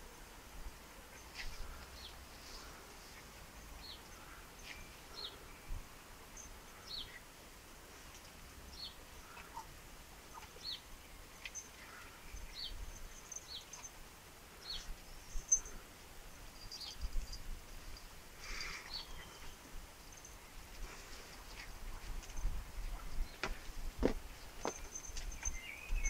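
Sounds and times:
rustle: 0.0s - 26.0s
small bird chirping: 10.3s - 14.0s, 16.5s - 17.5s, 18.6s - 20.4s, 24.6s - 26.0s.

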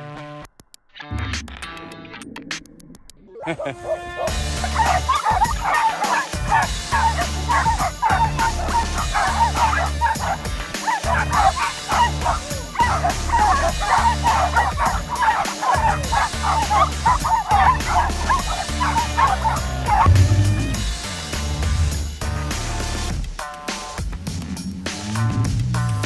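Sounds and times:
background music with bass: 0.0s - 26.0s
small dogs barking and yipping: 3.4s - 20.1s.

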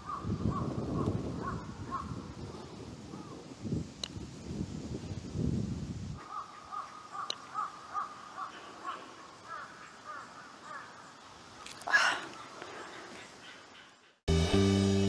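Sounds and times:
crow cawing: 0.0s - 0.7s, 6.2s - 11.0s.

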